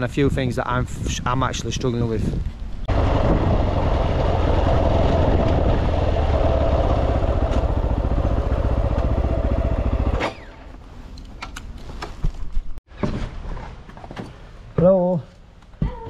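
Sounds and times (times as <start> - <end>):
motorcycle engine running: 2.9 - 10.7.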